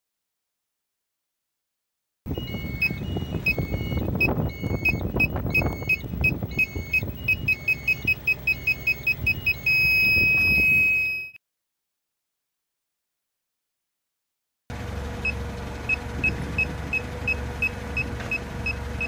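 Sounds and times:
low vehicle rumble: 2.3s - 11.3s, 14.7s - 19.0s
continuous warning tone: 2.3s - 11.4s, 15.2s - 19.0s
reversing sensor beeping: 2.3s - 11.4s, 15.2s - 19.0s.

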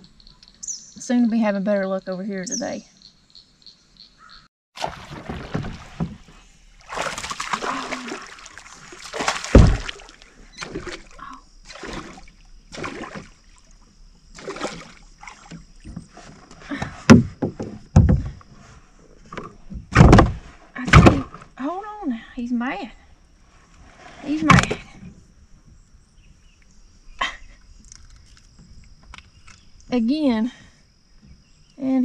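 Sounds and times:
fish splashing at surface: 4.8s - 13.5s
bumps on boat hull: 9.3s - 10.1s, 15.5s - 18.5s
heavy thump: 9.4s - 10.0s, 19.9s - 21.3s
sharp knocks: 9.4s - 10.0s.

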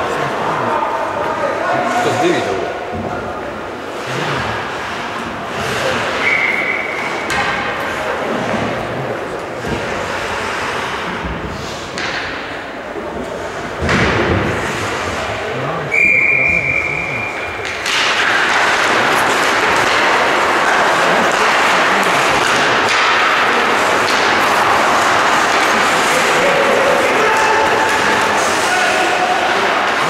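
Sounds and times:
referee's whistle: 15.9s - 17.4s
puck thud against boards: 17.6s - 28.1s.

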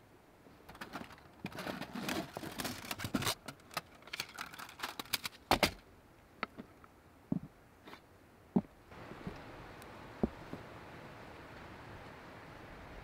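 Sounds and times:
camp gear clicking and rattling: 0.7s - 5.8s.

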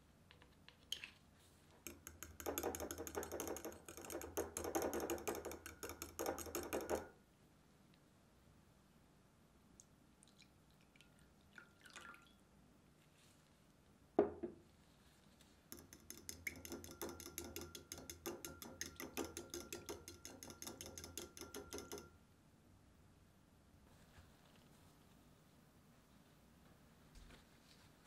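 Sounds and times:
fork whisking against glass bowl: 1.8s - 7.1s, 15.8s - 22.1s
milk pouring into glass bowl: 10.2s - 12.4s.

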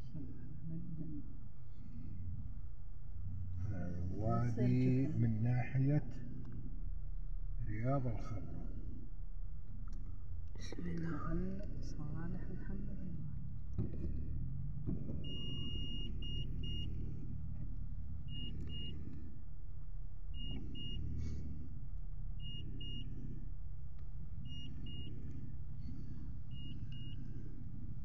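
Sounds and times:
dashboard warning beeps: 15.2s - 17.1s, 18.3s - 19.0s, 20.4s - 21.2s, 22.4s - 23.1s, 24.4s - 25.2s, 26.5s - 27.3s.

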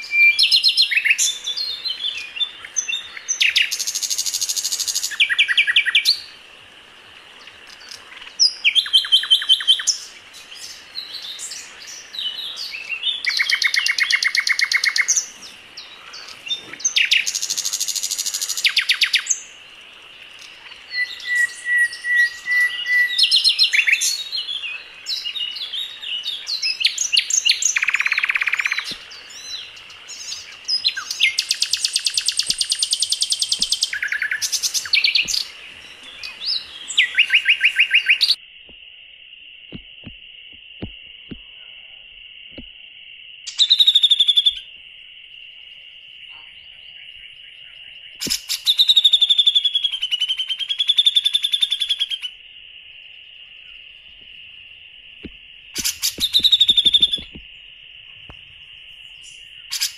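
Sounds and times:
songbirds trilling: 0.0s - 59.9s
bird chirps and whistles: 20.9s - 24.1s, 48.2s - 52.3s, 55.8s - 57.4s.

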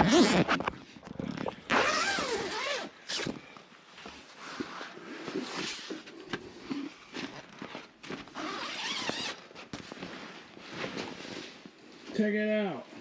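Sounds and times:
tent fabric rustling: 0.0s - 0.6s, 1.7s - 3.3s, 7.2s - 12.2s.

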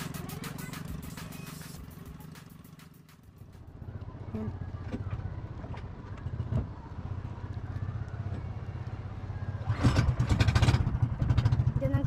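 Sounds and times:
boat engine chugging: 0.0s - 3.6s.

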